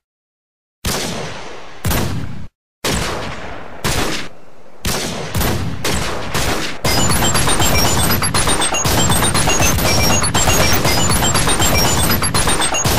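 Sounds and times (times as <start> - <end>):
rapid gunfire: 4.9 - 12.9
short high beeps: 6.9 - 12.9.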